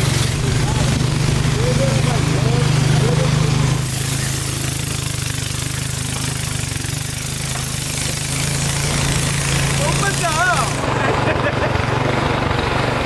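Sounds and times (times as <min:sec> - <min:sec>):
rushing hiss: 0:00.0 - 0:11.2
boat engine humming: 0:00.0 - 0:13.0.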